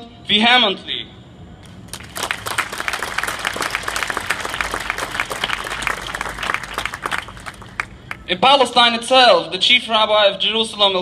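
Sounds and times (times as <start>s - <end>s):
audience applauding: 1.7s - 8.3s.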